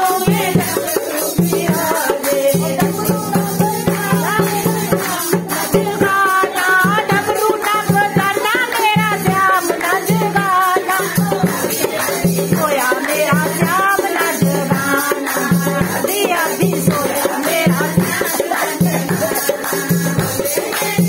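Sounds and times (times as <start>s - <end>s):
hand drum beating: 0.0s - 21.0s
women singing devotional song: 0.0s - 21.0s
hand clapping: 2.2s - 15.6s, 18.1s - 21.0s.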